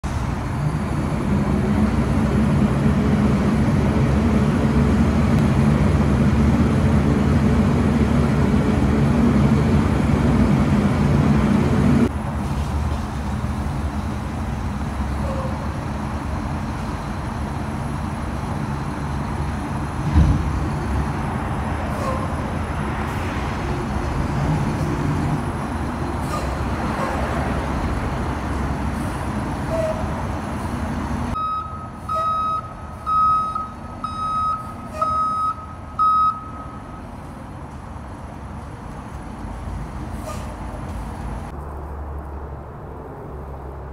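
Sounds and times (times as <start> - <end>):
reversing alarm beeps: 31.4 - 37.0.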